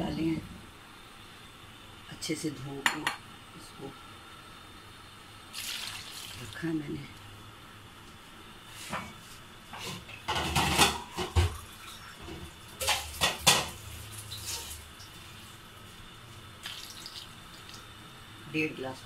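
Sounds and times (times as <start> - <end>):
water poured into a pan: 5.5 - 6.6, 16.6 - 17.8
kitchenware clattering: 9.8 - 13.8.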